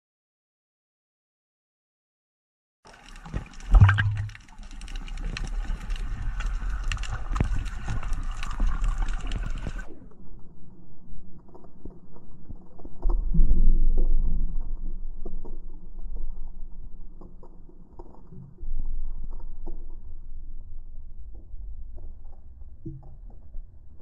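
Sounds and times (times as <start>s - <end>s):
underwater air bubbles gurgling: 2.9s - 10.0s
crackle of bubbling clicks: 2.9s - 24.0s
low rumble: 3.7s - 24.0s.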